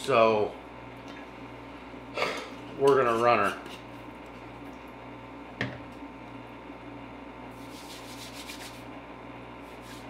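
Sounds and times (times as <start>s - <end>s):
palms rubbing together: 7.6s - 8.9s.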